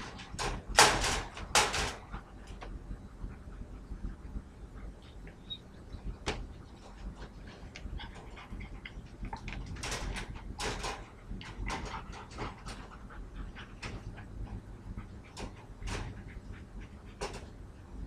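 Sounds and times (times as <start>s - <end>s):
wire dog crate rattling: 0.0s - 2.2s, 9.3s - 14.1s.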